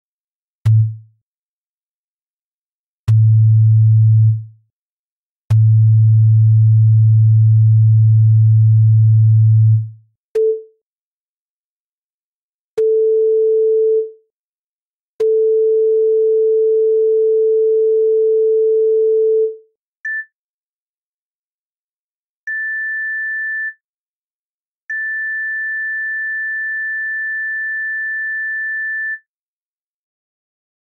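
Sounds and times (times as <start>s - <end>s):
synthesized sine-wave tones: 24.9s - 29.2s.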